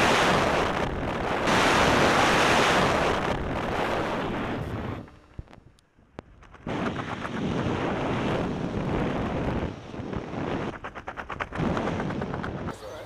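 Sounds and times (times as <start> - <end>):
wind buffeting microphone: 6.2 - 13.0.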